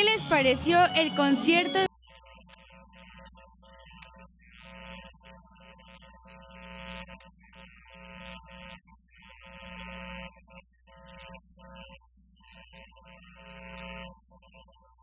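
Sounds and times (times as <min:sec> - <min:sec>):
sustained keyboard notes music: 0:00.0 - 0:01.9.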